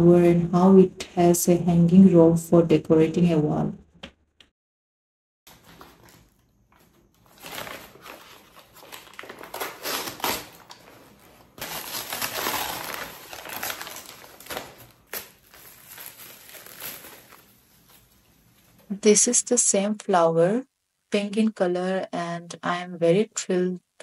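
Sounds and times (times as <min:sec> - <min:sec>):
packaging crinkling and rustling: 0:05.5 - 0:18.8.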